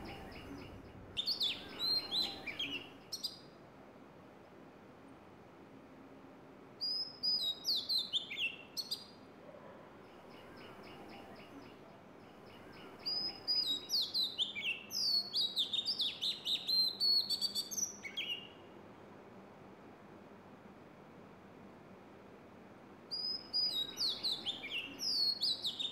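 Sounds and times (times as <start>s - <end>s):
bird singing whistled notes: 0.0s - 3.5s, 6.8s - 9.2s, 12.5s - 18.6s, 23.1s - 25.9s.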